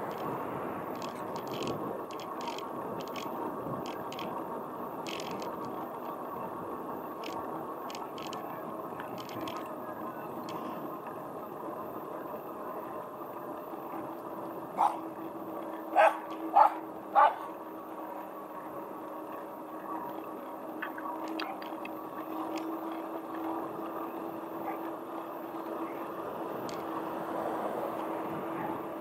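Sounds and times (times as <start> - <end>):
bicycle tyre and wind noise: 0.0 - 29.0
small dog barking: 14.8 - 15.0, 15.9 - 17.5, 24.6 - 24.9.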